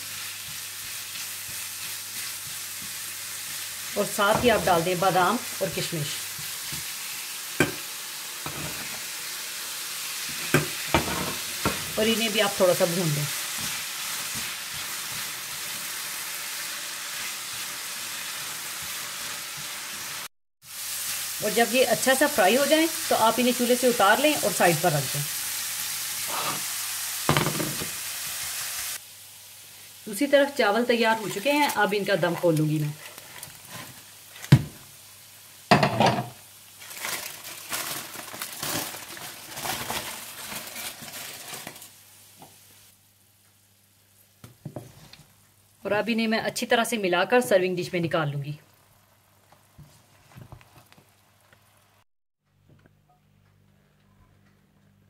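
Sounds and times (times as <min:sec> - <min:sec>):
food sizzling in a frying pan: 0:00.0 - 0:52.1
spatula stirring: 0:00.1 - 0:04.8, 0:13.3 - 0:20.0, 0:31.2 - 0:34.6
aluminium foil crinkling: 0:31.2 - 0:34.6, 0:36.7 - 0:42.0.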